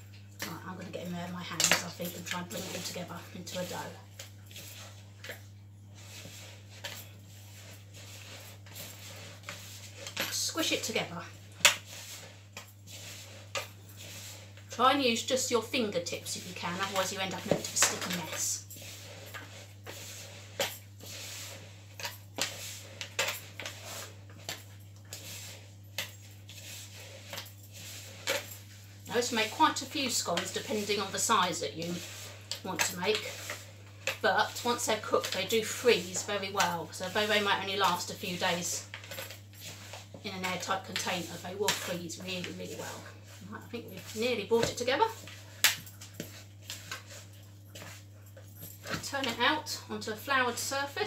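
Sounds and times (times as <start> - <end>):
hands squishing dough: 1.4 - 49.5.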